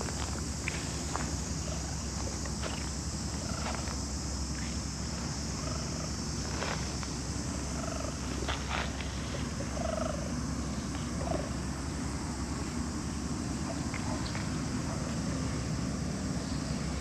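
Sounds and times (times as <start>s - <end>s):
steady hiss and rumble: 0.0s - 17.0s.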